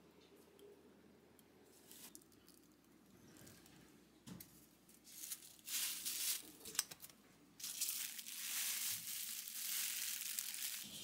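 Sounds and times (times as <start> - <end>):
crinkling rustling: 4.9 - 11.0.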